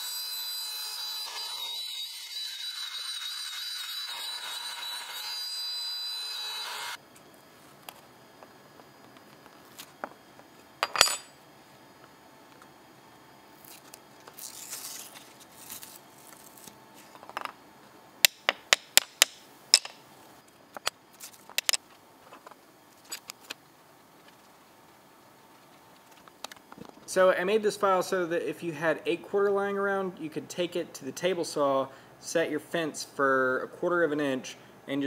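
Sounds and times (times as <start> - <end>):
cnc router cutting wood: 0.0 - 7.0.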